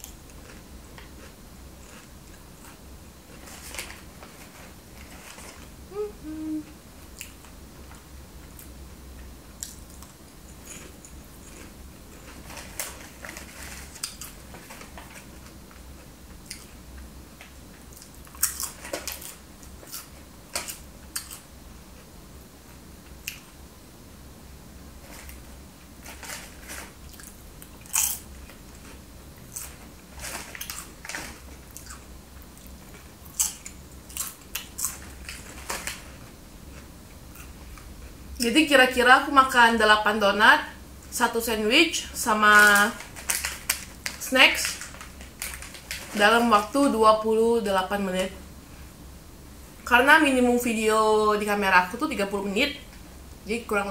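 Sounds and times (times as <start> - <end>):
chips crunched and chewed: 0.0 - 4.4, 9.6 - 15.6, 17.9 - 21.5, 26.1 - 36.1, 42.6 - 46.2
low steady hum: 0.0 - 53.9
chip packet rustling: 10.5 - 15.6, 25.0 - 32.0, 33.3 - 36.2, 42.3 - 46.8.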